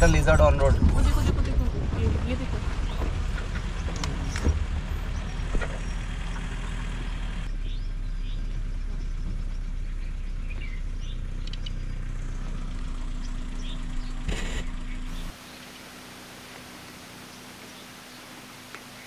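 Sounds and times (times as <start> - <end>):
vehicle engine idling: 0.0 - 19.0
bird chirps: 4.2 - 15.9.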